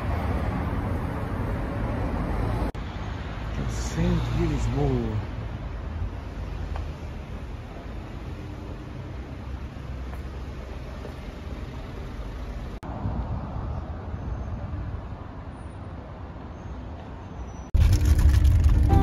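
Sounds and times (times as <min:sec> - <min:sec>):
road traffic rumble: 0:00.0 - 0:19.0.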